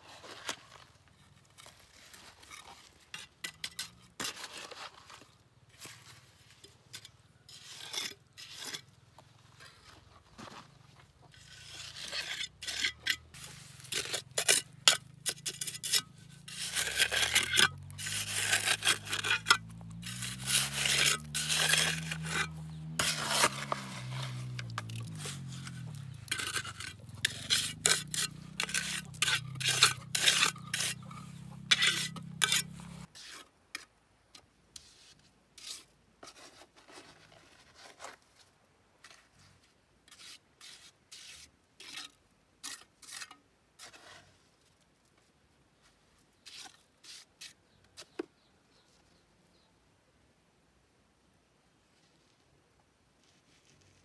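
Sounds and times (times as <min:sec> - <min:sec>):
scraping on bricks: 0:00.1 - 0:33.9.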